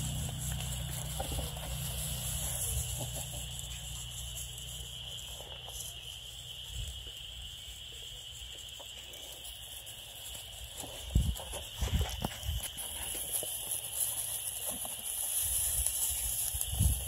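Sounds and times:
paws rustling in dry grass: 0.0s - 17.0s.

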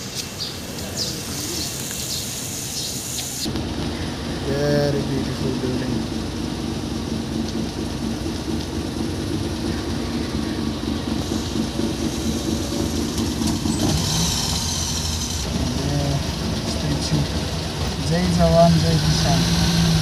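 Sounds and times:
bright hiss: 0.0s - 4.6s
car engine idling: 0.0s - 20.0s
traffic noise: 0.0s - 20.0s.

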